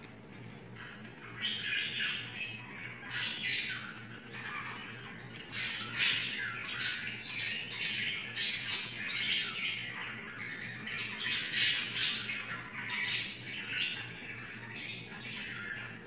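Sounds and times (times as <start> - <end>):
budgerigars squawking: 1.3 - 14.1.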